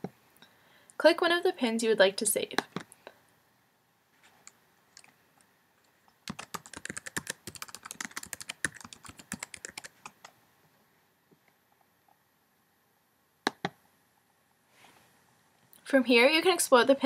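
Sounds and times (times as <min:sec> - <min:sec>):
computer keyboard typing: 0:06.2 - 0:10.3.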